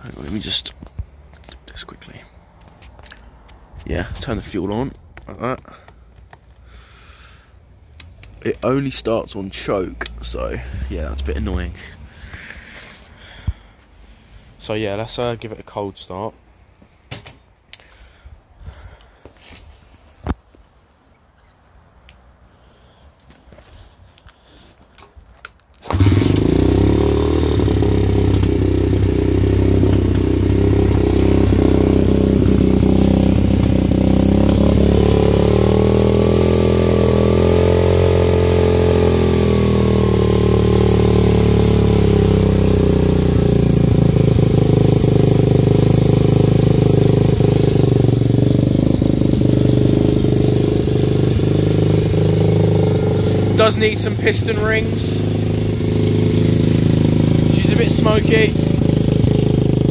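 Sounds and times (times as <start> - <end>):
motorbike engine starting and idling: 25.8 - 59.9.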